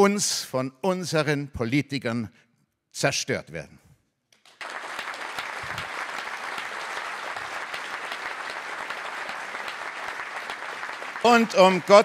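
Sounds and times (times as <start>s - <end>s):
audience applauding: 4.4s - 12.0s.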